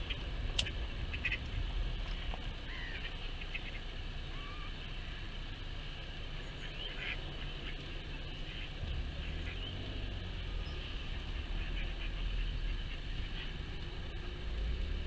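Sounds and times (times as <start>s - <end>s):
wind rumble on microphone: 0.0s - 4.6s, 8.0s - 15.0s
birds chirping and calling: 0.0s - 15.0s.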